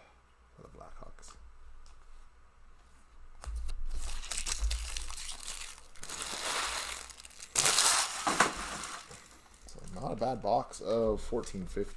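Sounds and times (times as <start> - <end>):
card packaging crinkling and tearing: 3.9 - 9.4.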